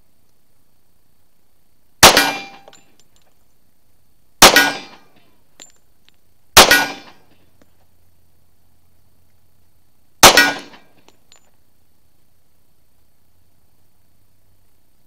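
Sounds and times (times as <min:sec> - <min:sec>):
faint ticks: 0:00.2 - 0:00.5
pistol shots: 0:02.0 - 0:02.7, 0:04.4 - 0:05.1, 0:06.6 - 0:07.2, 0:10.2 - 0:10.9.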